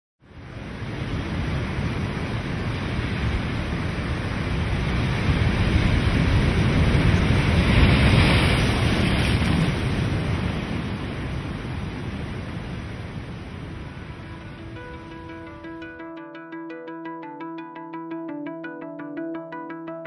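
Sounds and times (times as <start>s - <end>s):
ocean surf rushing: 0.4s - 16.3s.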